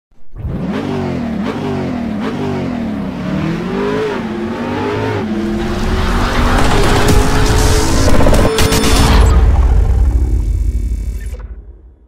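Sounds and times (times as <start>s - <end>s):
car engine revving: 0.3s - 11.2s.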